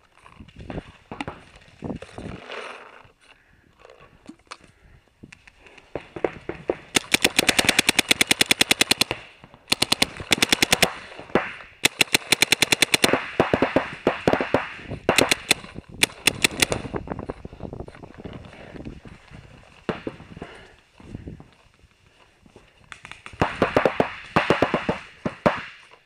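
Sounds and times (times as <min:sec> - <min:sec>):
faint distant paintball shots: 0:05.9 - 0:16.9, 0:22.9 - 0:26.0
paintball marker rapid firing: 0:06.2 - 0:16.9, 0:23.2 - 0:25.8.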